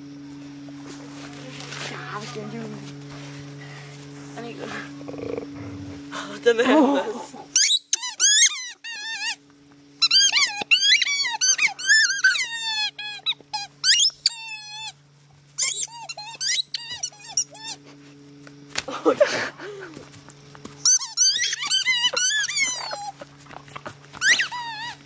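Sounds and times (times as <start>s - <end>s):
squeaky ball squeaking: 7.6s - 9.4s, 10.0s - 15.0s, 15.6s - 17.8s, 20.8s - 23.2s, 24.1s - 25.0s.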